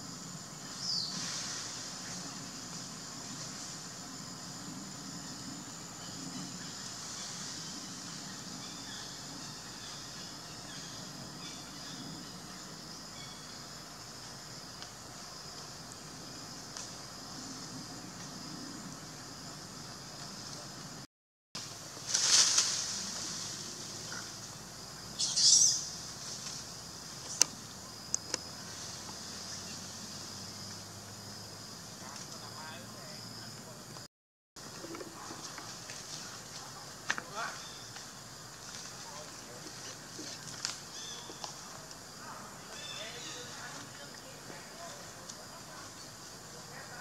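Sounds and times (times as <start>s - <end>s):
insects droning: 0.0s - 47.0s
high-pitched chirp: 25.2s - 25.9s.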